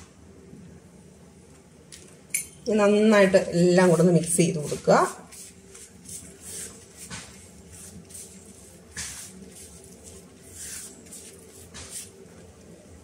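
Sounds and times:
hand rubbing spice on leaf: 4.2 - 12.3.

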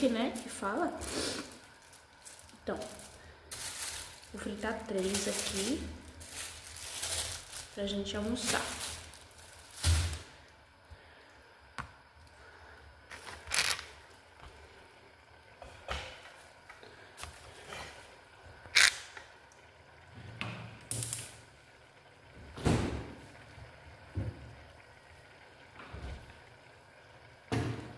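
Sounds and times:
scraping and rustling: 5.0 - 10.2.

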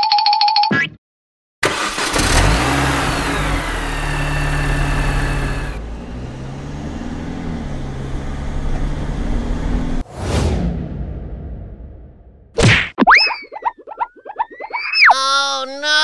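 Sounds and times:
car engine revving: 1.6 - 10.1.

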